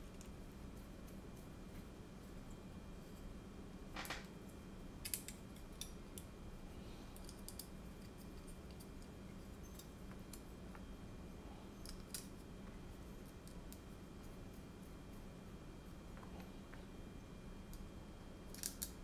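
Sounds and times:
low steady hum: 0:00.0 - 0:19.0
clicks of small parts fitted by hand: 0:05.0 - 0:06.3, 0:18.5 - 0:19.0.

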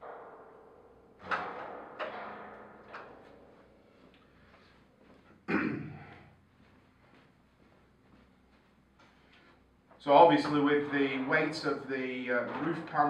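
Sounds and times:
metal frame knocking and clanking: 0:00.0 - 0:04.3.

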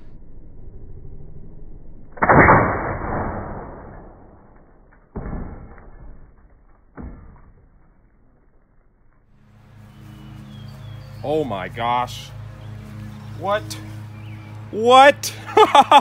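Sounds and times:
deep blast of bullet impact: 0:02.1 - 0:06.4
thuds of block knocked over: 0:04.9 - 0:08.2.

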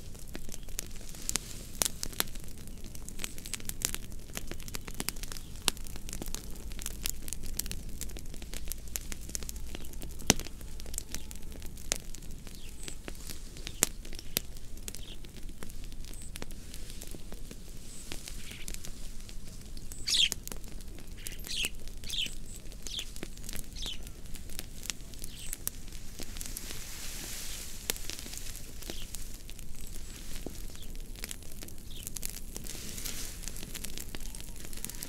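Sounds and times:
wood fire crackling: 0:00.0 - 0:35.0
bird chirping: 0:19.8 - 0:20.4, 0:21.2 - 0:24.2, 0:25.2 - 0:25.6, 0:28.8 - 0:29.1.

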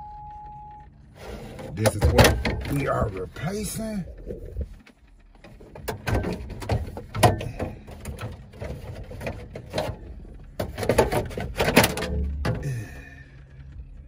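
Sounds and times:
knocks and clicks in vehicle cab: 0:05.4 - 0:12.7.

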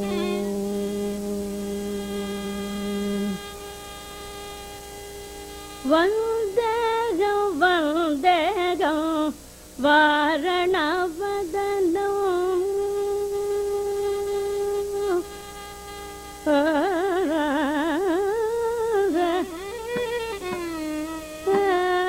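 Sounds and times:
steady drone: 0:00.0 - 0:06.8
woman singing ornamented phrase: 0:05.8 - 0:15.3, 0:16.4 - 0:19.9, 0:21.4 - 0:22.0.

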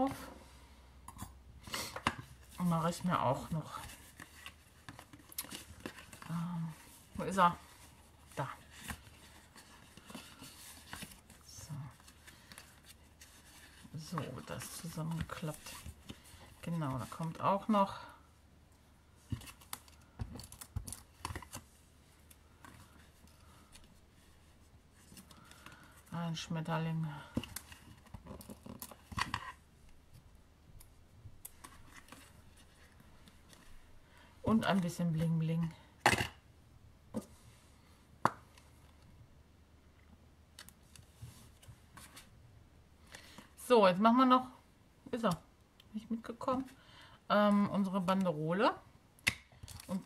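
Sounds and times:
faint paper rustling: 0:02.0 - 0:18.3, 0:19.0 - 0:35.9, 0:40.6 - 0:42.4.

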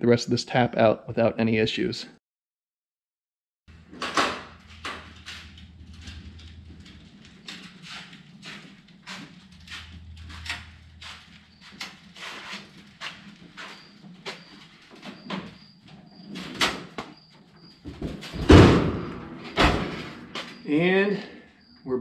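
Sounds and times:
heavy thud of appliance set down: 0:18.0 - 0:20.2.

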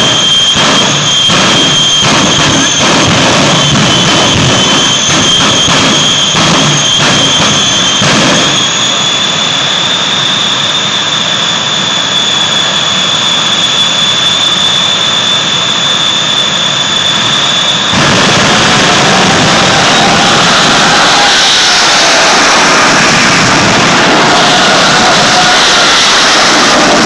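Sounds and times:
high-pitched jet whine: 0:00.0 - 0:27.0
jet engine roar: 0:00.0 - 0:27.0.

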